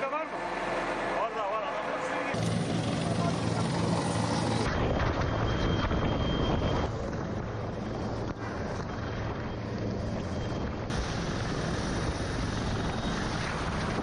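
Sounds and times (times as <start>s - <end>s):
helicopter rotor and engine: 0.0s - 14.0s.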